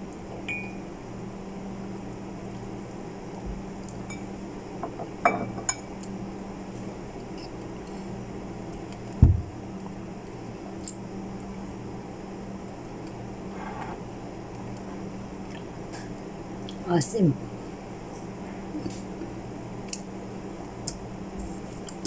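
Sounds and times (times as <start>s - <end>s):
dull thump: 9.2s - 9.5s.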